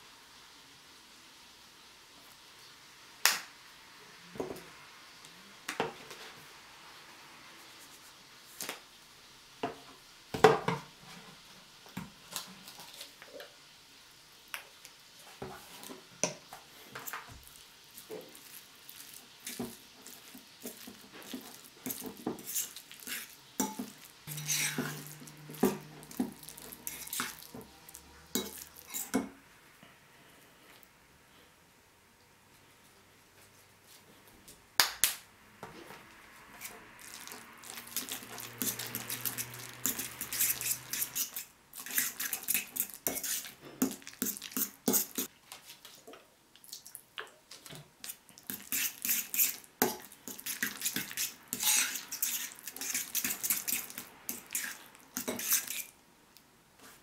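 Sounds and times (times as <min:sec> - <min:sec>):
fork scraping ceramic bowl: 0:21.4 - 0:27.5, 0:28.4 - 0:29.2, 0:37.9 - 0:45.3, 0:48.5 - 0:55.9.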